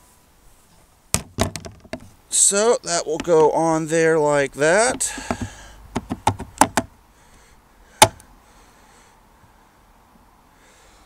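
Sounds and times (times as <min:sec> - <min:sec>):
plastic piece clicking and knocking: 0:04.9 - 0:06.9, 0:08.0 - 0:08.2.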